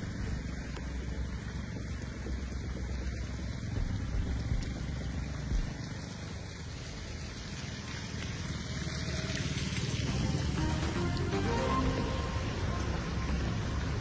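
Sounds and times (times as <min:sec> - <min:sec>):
steady rushing noise: 0:00.0 - 0:07.5
motor scooter riding through water: 0:00.0 - 0:14.0.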